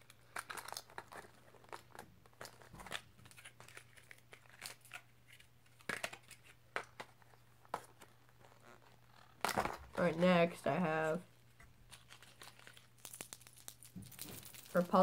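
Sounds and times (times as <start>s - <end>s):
packaging crinkling and tearing: 0.0s - 15.0s.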